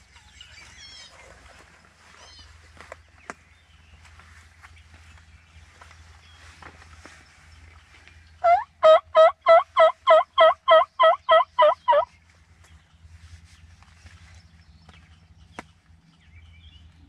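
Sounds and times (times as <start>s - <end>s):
turkey yelps: 8.4s - 12.1s.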